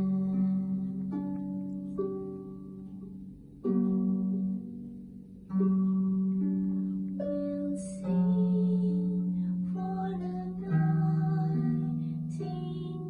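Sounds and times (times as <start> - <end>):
harp playing: 0.0 - 13.0.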